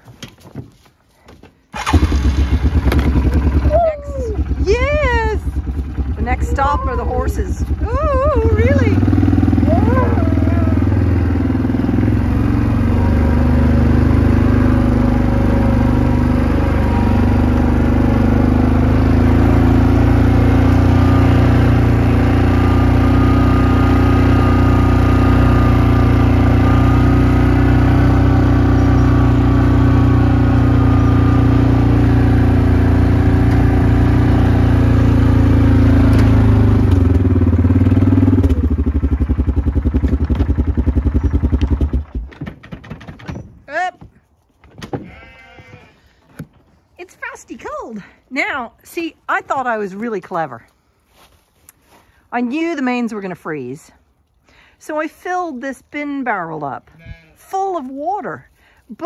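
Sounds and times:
quad bike engine: 1.8 - 43.9.

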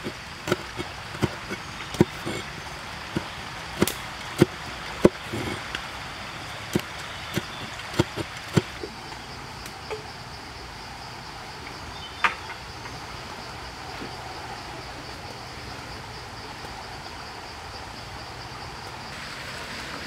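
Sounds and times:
knife chopping on wooden board: 0.0 - 2.4, 3.2 - 5.5, 6.7 - 8.7
background hiss: 0.0 - 20.0.

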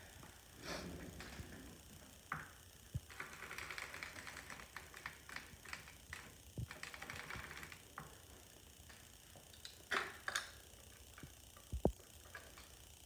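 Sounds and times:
sock machine needles clicking: 2.9 - 10.6.

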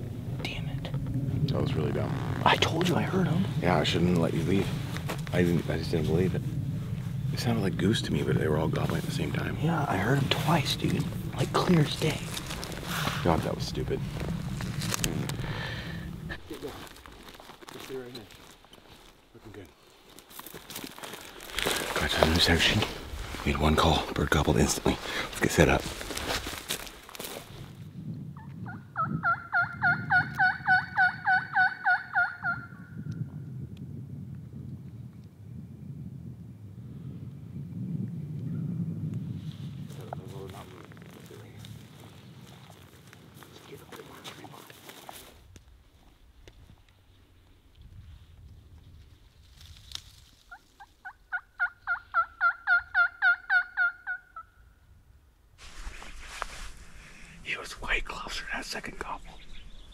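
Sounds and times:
turkey call hen yelps: 28.4 - 32.8, 50.5 - 54.6.

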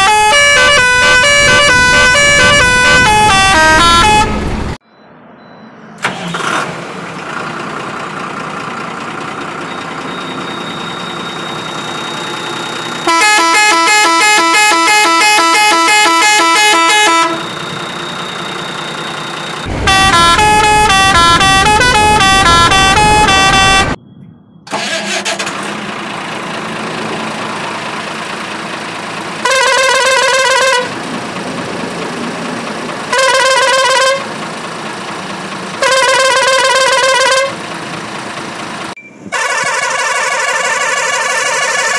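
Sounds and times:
musical truck horn tune: 0.0 - 4.8, 13.0 - 18.0, 19.6 - 24.0, 29.4 - 30.9, 33.1 - 34.3, 35.8 - 37.6, 39.3 - 41.9
truck horn blasts: 0.0 - 4.8, 13.0 - 18.3, 19.7 - 24.0, 29.4 - 30.9, 33.1 - 34.4, 35.8 - 37.6, 39.3 - 41.9
diesel truck engine idling: 6.7 - 41.9.

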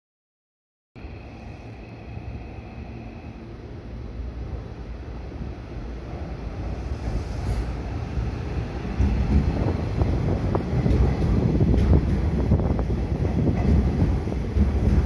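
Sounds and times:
train wheels rumbling on rails: 4.2 - 15.0.

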